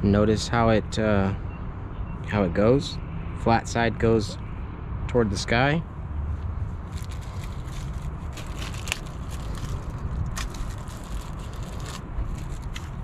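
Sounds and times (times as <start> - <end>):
low steady rumble: 5.2 - 13.0
gloved hands handling parts: 6.8 - 13.0
small clicks and crinkles: 6.9 - 13.0.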